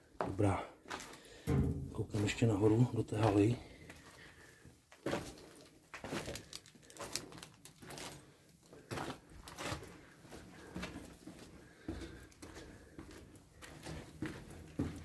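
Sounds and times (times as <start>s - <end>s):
footsteps on debris: 0.2s - 15.0s.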